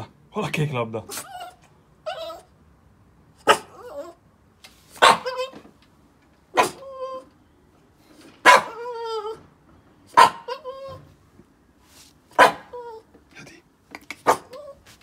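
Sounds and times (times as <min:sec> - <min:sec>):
dog barking and whining: 0:01.1 - 0:02.6, 0:03.3 - 0:04.3, 0:04.9 - 0:05.6, 0:06.5 - 0:07.4, 0:08.4 - 0:09.5, 0:10.1 - 0:11.1, 0:12.3 - 0:13.1, 0:14.2 - 0:15.0.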